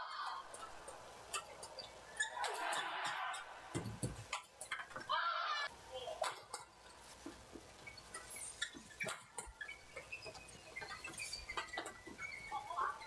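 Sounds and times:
shoes squeaking on court floor: 7.8 - 13.0.

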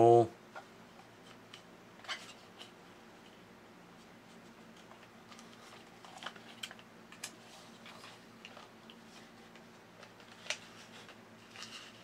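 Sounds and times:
small clicks and light scrapes: 4.2 - 12.0.

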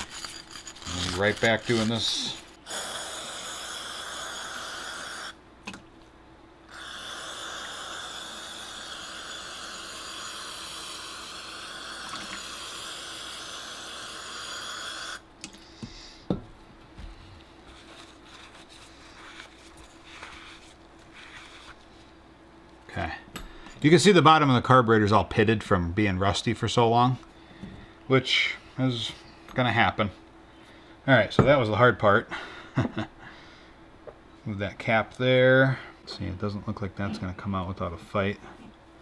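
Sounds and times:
pressurized spray hissing: 2.7 - 5.4, 6.7 - 15.2.

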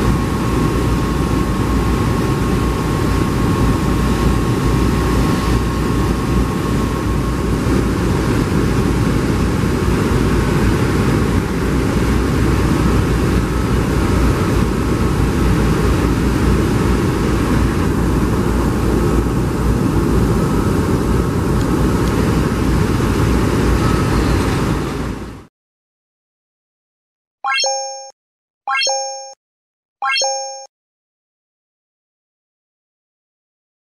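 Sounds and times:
jet engine noise: 0.0 - 25.5.

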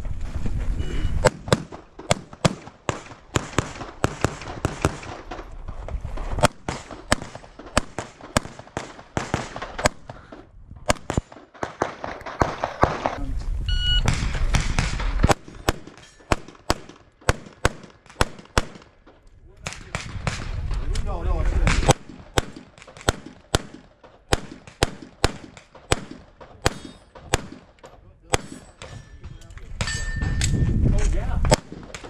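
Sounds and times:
shot timer beep: 13.7 - 14.1
handgun shots: 21.7 - 29.0.

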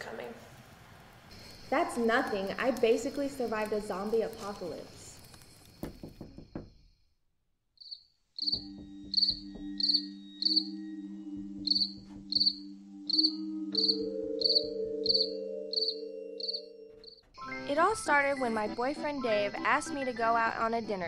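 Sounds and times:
cricket chirping: 7.8 - 17.2.

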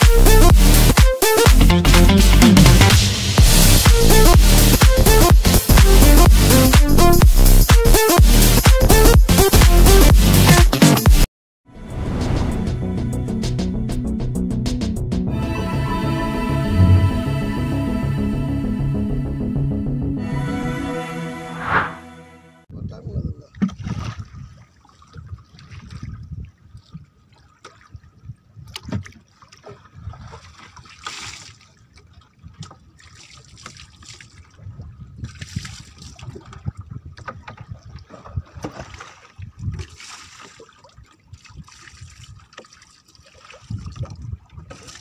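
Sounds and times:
waves lapping against a boat: 23.4 - 45.0.

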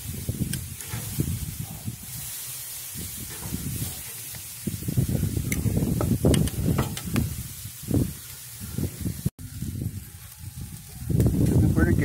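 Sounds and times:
low rumbling: 0.0 - 12.0
steaks sizzling on a grill: 0.0 - 12.0.

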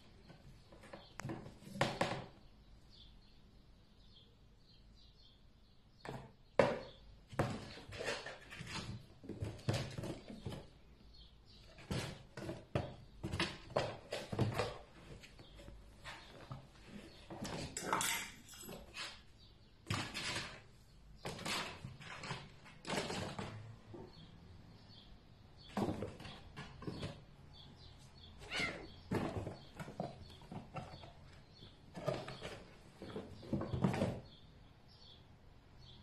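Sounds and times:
cardboard box knocks and bumps: 25.6 - 27.2, 29.1 - 31.2, 31.9 - 34.4.

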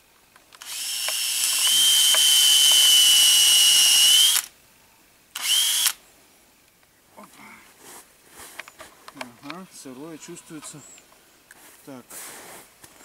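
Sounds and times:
cordless drill boring into wood: 0.6 - 4.5, 5.4 - 6.0.

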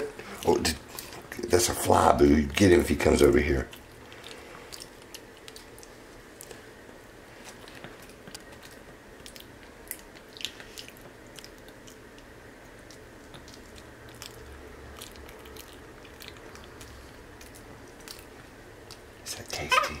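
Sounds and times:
monkey chewing: 3.6 - 6.8, 7.4 - 19.3.

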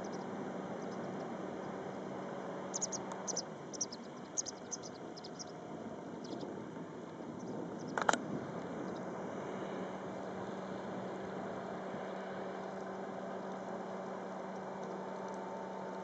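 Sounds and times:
small animal chirping: 0.0 - 1.8, 2.6 - 6.5, 7.2 - 8.1
outdoor background hiss: 0.0 - 16.0.

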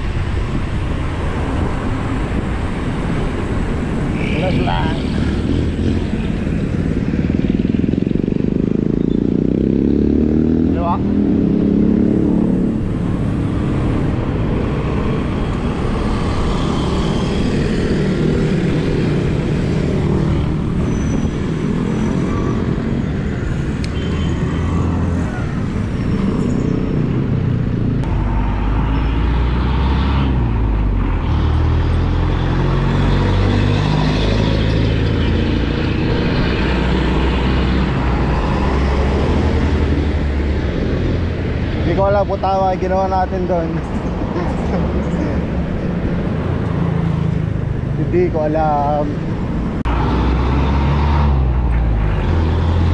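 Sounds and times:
motor traffic: 0.0 - 52.9
road hiss: 12.0 - 17.2, 23.3 - 27.1.

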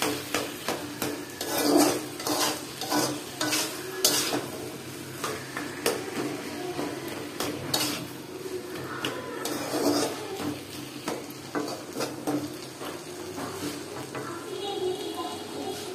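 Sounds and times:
spatula clinking against pan: 0.0 - 4.5
metal spatula scraping iron pan: 0.0 - 6.0, 7.3 - 12.7
leaves sizzling: 0.0 - 15.9.

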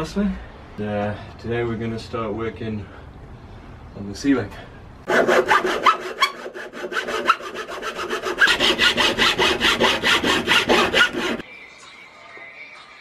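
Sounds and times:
hacksaw cutting wood: 5.1 - 11.4.

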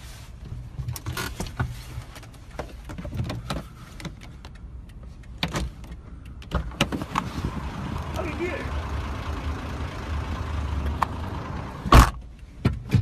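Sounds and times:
low rumble inside car: 0.0 - 13.0
clicks and knocks at car door: 12.0 - 13.0.

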